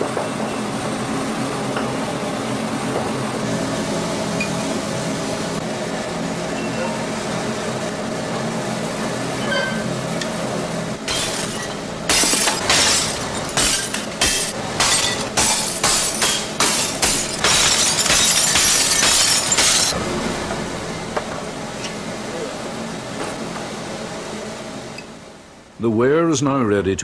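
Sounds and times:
low factory hum: 0.0 - 27.0
china smashing onto a heap: 11.1 - 20.0.

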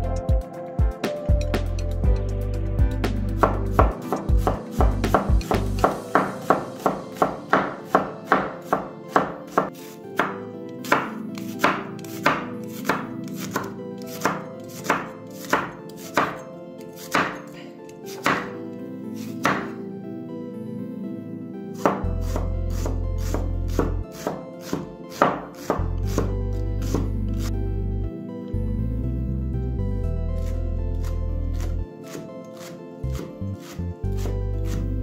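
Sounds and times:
soft background music: 0.0 - 35.0
knife chopping on wooden board: 3.4 - 16.4, 17.0 - 18.6, 19.3 - 19.8, 21.8 - 27.5, 30.4 - 34.9.

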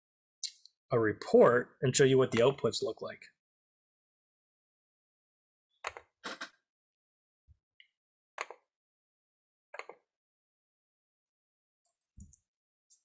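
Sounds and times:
computer clicks and knocks: 2.3 - 2.6.

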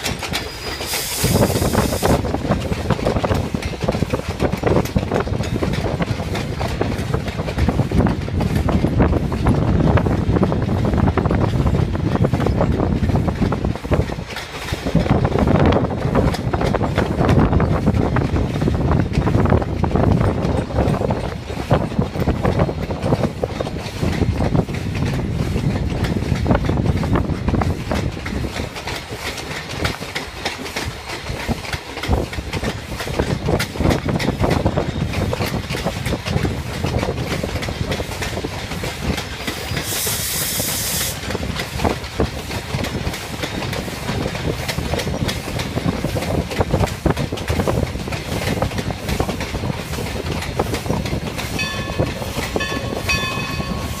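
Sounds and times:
train wheels clacking on rails: 0.0 - 54.0
steam hissing: 0.1 - 2.4, 38.8 - 41.8.

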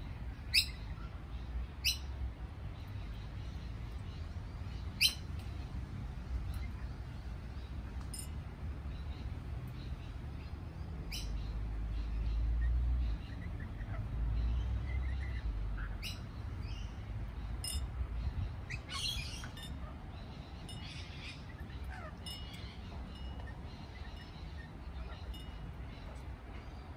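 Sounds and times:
parrots chirping and screeching: 18.7 - 20.0, 20.6 - 26.3.

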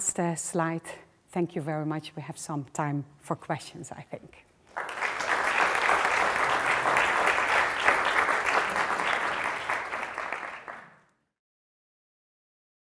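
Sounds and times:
audience applauding: 4.7 - 11.1.

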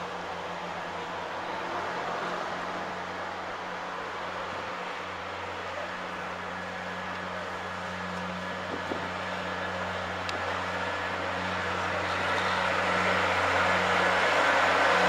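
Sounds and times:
diesel locomotive engine drone: 0.0 - 15.0.

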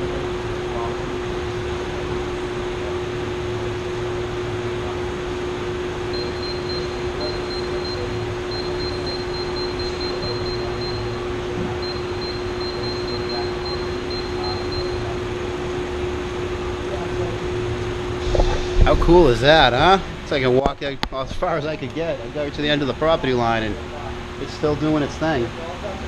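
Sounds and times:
constant low hum: 0.0 - 26.0
fans rushing air: 10.4 - 26.0.

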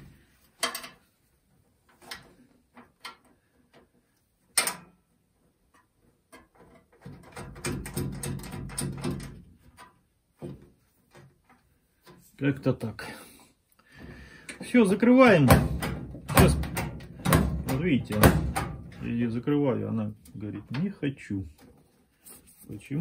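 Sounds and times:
clicks and knocks on sheet metal: 0.6 - 1.1, 4.5 - 5.1, 5.7 - 12.2, 15.2 - 19.1.

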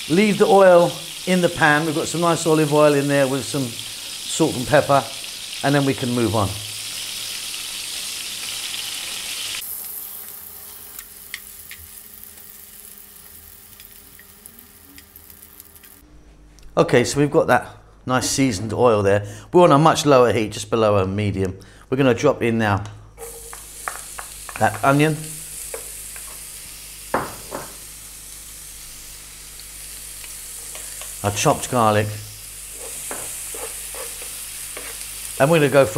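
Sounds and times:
zucchini sizzling in frying pan: 0.0 - 16.0, 23.2 - 35.9.

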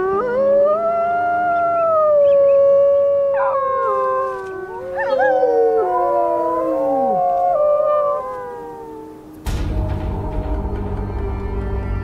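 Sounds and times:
wolves howling: 0.0 - 9.4.

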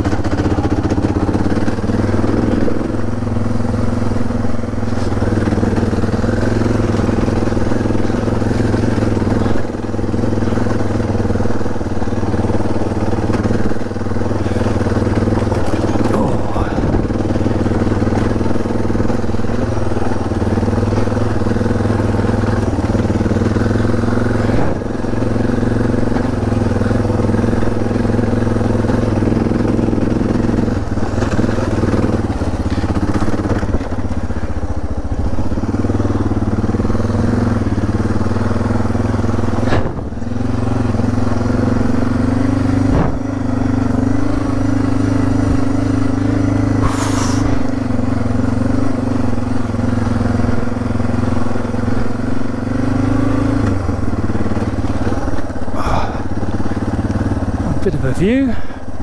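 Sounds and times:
motorcycle engine running: 0.0 - 59.0
sharp knocks: 42.9 - 43.2
short hiss: 46.8 - 47.5.

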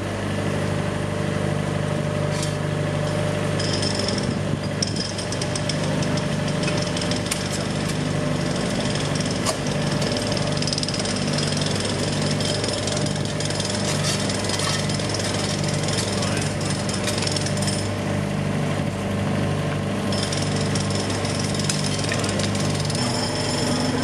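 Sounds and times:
engine running steadily: 0.0 - 24.0
power tool hammering rapidly: 8.4 - 17.9, 20.1 - 24.0.

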